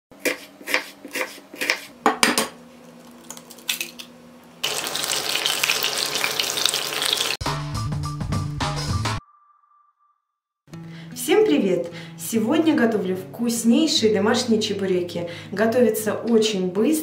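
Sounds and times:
knife cutting onion on wooden board: 0.2 - 2.0
hot oil sizzling: 4.6 - 7.4.

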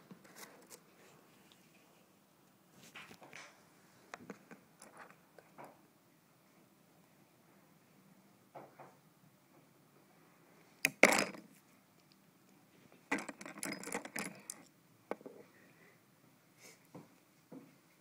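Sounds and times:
metal tool clicking and clattering: 13.1 - 14.7.

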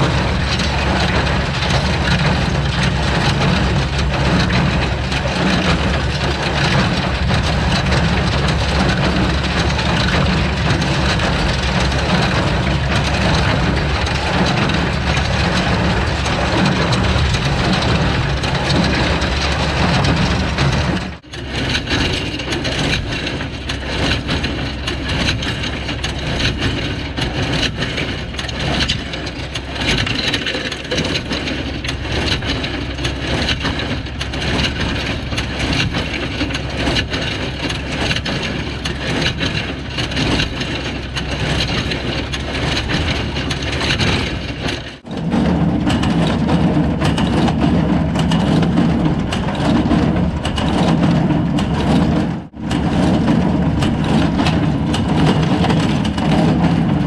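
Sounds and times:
deep hum: 0.0 - 23.1
baler rattling and clacking: 0.0 - 57.0
tractor engine running: 0.0 - 57.0.

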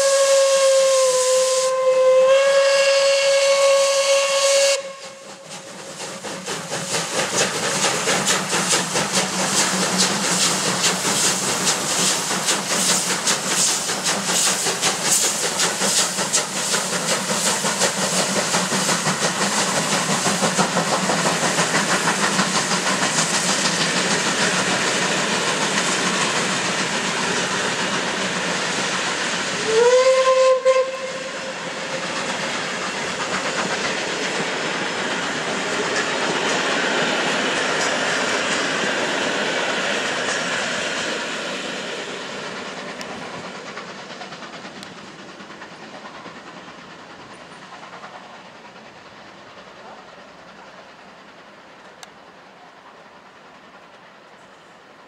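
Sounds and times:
steam locomotive whistle: 0.0 - 5.4, 29.5 - 32.0
hissing steam: 0.0 - 55.0
steam locomotive exhaust beats: 0.0 - 55.0.

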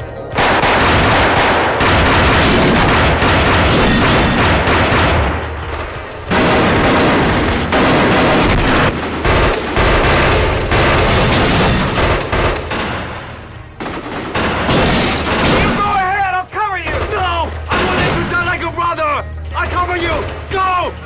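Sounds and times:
rapid gunfire: 0.4 - 15.9.

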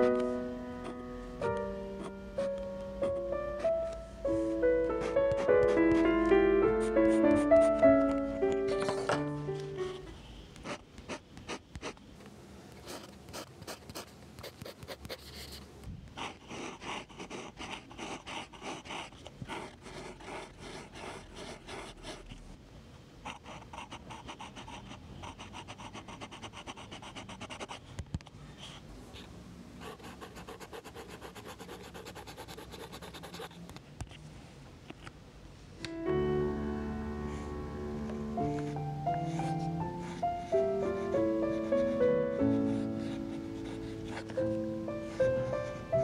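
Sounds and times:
pen scratching on paper: 10.6 - 12.0, 12.8 - 15.6, 16.2 - 22.4, 23.2 - 27.8, 29.8 - 33.6, 42.6 - 44.6.

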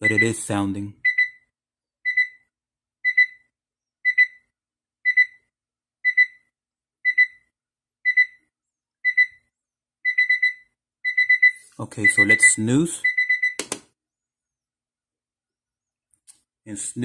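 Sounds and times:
alarm clock double beep: 0.0 - 1.4, 2.1 - 4.5, 5.1 - 5.4, 6.0 - 7.5, 8.1 - 8.4, 9.0 - 9.4, 10.0 - 13.6.

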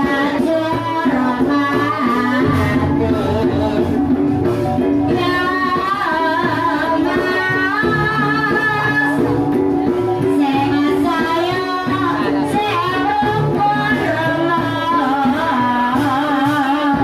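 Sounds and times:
person singing ornamented vocal: 0.0 - 4.6.

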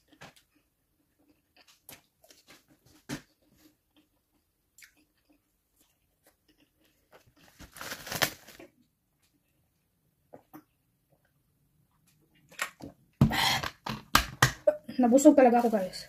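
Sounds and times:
wet mouth chewing: 3.9 - 7.4
plastic bag crinkling: 7.3 - 8.7.

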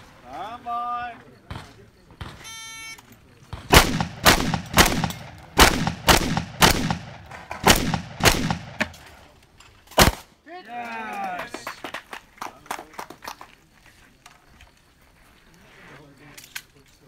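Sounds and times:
shotgun shots with echo: 3.6 - 9.2, 10.0 - 10.3.

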